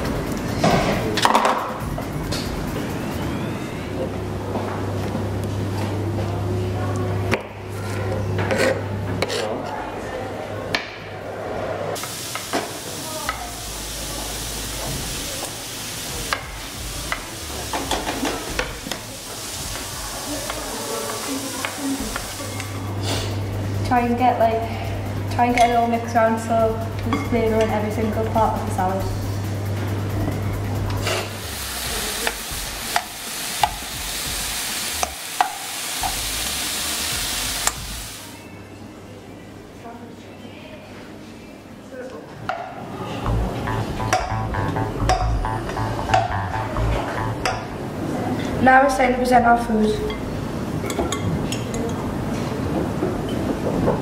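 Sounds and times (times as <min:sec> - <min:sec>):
food sizzling in a frying pan: 0:12.0 - 0:23.3, 0:31.0 - 0:38.4.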